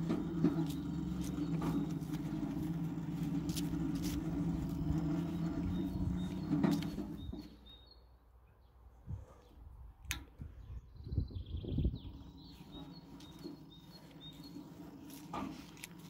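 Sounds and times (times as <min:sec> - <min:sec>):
electric motor humming: 0:00.0 - 0:07.5, 0:11.8 - 0:16.0.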